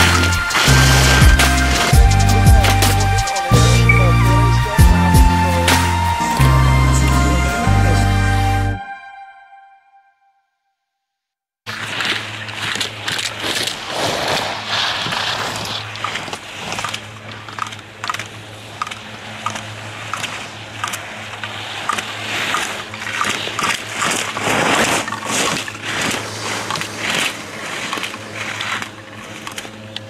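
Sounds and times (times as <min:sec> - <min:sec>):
skis scraping on snow: 0:00.0 - 0:03.5, 0:11.7 - 0:30.0
slalom poles clacking: 0:00.0 - 0:04.0, 0:11.7 - 0:30.0
steady low hum: 0:00.0 - 0:08.0.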